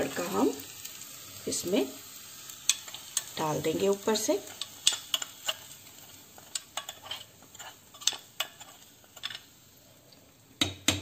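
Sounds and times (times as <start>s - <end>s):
faint sizzle: 0.0s - 11.0s
steel spoon scraping and clinking: 4.8s - 9.5s.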